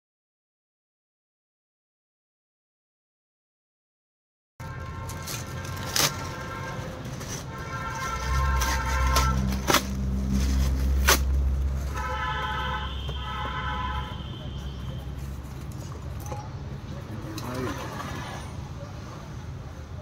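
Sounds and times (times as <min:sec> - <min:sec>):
vehicle engine rumbling: 0:04.6 - 0:20.0.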